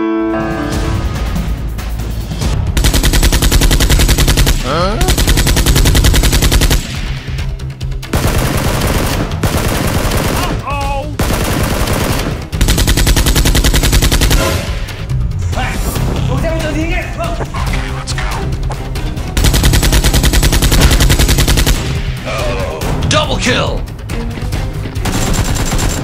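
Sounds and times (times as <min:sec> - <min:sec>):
machine-gun fire bursts: 0:02.8 - 0:15.0, 0:19.4 - 0:22.2, 0:25.0 - 0:26.0.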